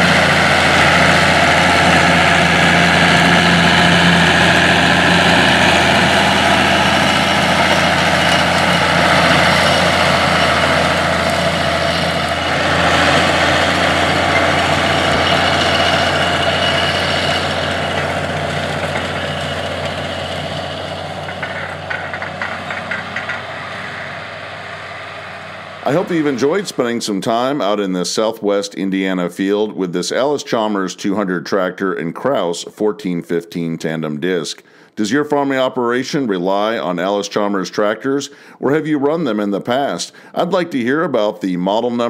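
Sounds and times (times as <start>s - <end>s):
tractor diesel engine running: 0.0s - 27.9s.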